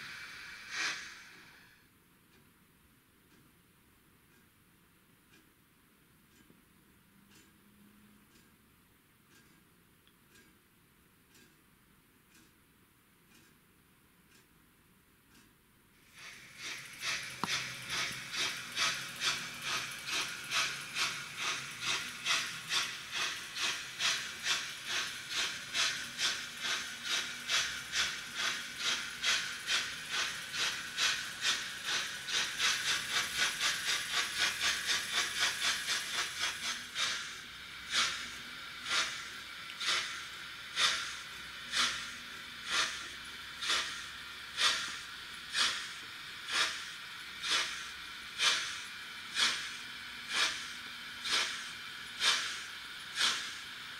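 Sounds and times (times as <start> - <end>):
model train steam chuffing: 0.0 - 1.9, 16.0 - 53.9.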